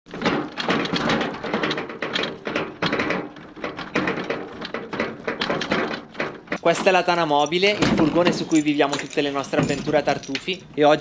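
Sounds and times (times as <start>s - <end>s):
plastic buckets rattling in wheelbarrow: 0.1s - 11.0s.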